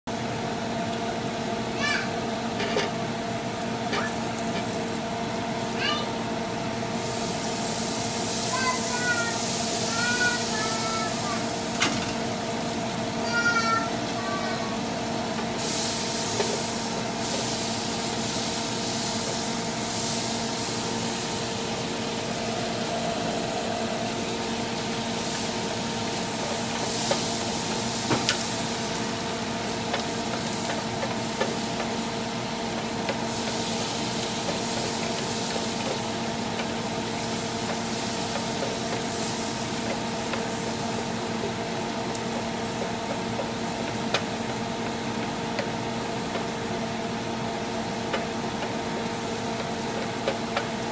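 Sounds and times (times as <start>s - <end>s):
steady hum: 0.1s - 50.9s
butter and garlic sizzling: 1.8s - 50.9s.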